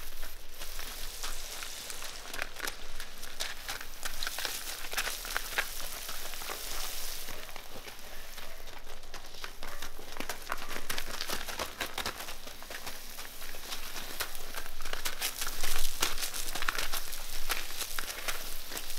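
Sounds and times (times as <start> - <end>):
garden hose spray hissing: 0.0 - 8.6, 12.6 - 18.9
hooves crunching on gravel: 0.0 - 18.9.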